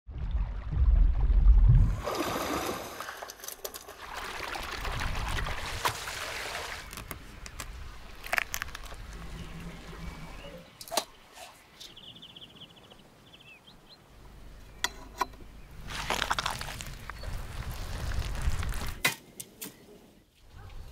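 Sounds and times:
water splashing and trickling: 0.1s - 11.9s, 15.8s - 19.0s.

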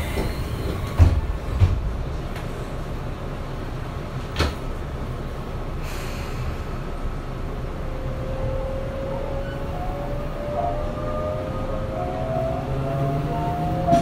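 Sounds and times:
train doors shutting: 0.0s - 4.9s, 12.8s - 14.0s.

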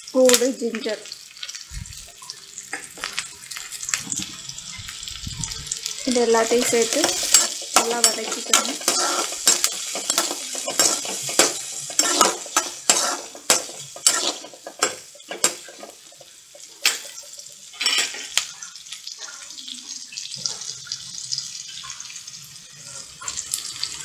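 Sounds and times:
oil sizzling: 0.0s - 24.0s
metal spatula scraping metal pan: 6.1s - 18.4s.

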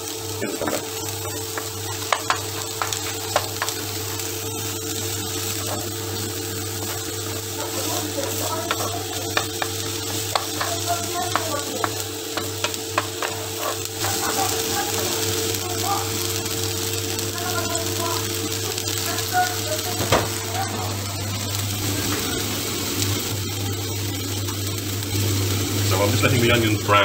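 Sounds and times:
onion sizzling in a pan: 0.0s - 27.0s
steady hum: 0.0s - 27.0s
wooden spatula scraping pan: 12.4s - 14.4s.

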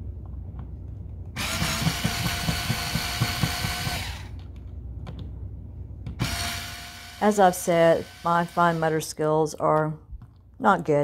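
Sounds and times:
cordless screwdriver motor whine: 6.2s - 9.0s.

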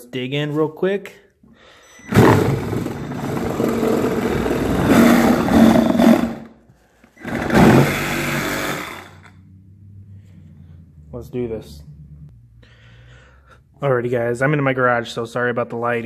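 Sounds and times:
reciprocating saw cutting cardboard: 2.1s - 6.6s, 7.2s - 9.3s.

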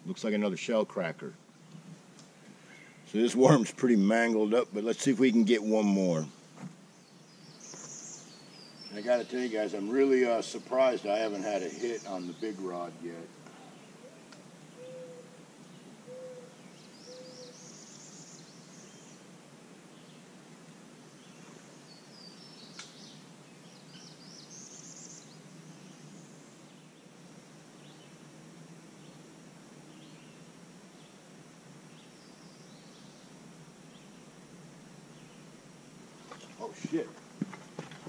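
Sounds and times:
outdoor hiss: 0.0s - 38.0s
high trilling birdsong: 2.4s - 20.4s, 21.1s - 28.2s, 29.0s - 34.4s
bird low hoots: 13.4s - 17.8s.

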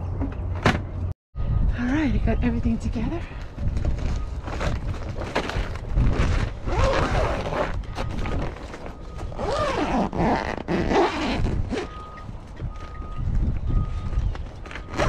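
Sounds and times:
zipper being pulled: 6.0s - 7.8s, 9.3s - 11.9s.

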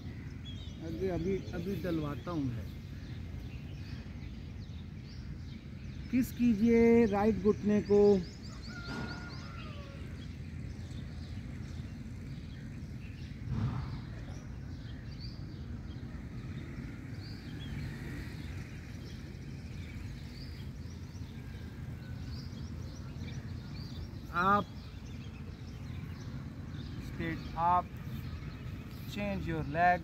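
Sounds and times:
bird chirps: 0.0s - 30.0s.

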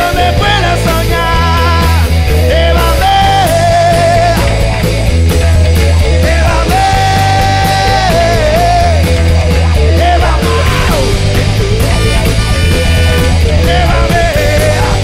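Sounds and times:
bass guitar: 0.0s - 15.0s
drums: 0.0s - 15.0s
lead electric guitar bending notes: 0.0s - 15.0s.

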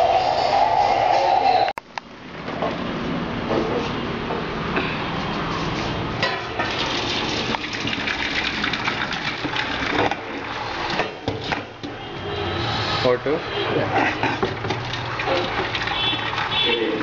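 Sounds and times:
water gushing into colander: 6.6s - 11.2s, 14.2s - 17.0s.

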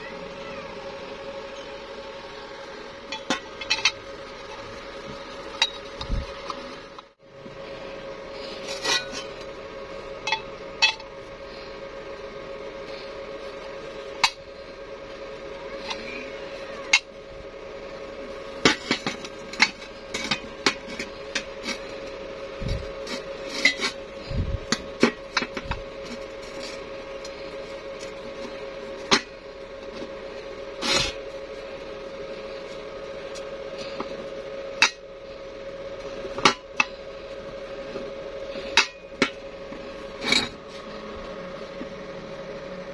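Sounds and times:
steady hum: 0.0s - 42.9s
metal tubes clanking: 3.0s - 6.7s, 8.4s - 9.6s, 10.2s - 11.2s, 18.5s - 30.1s, 38.5s - 40.9s.

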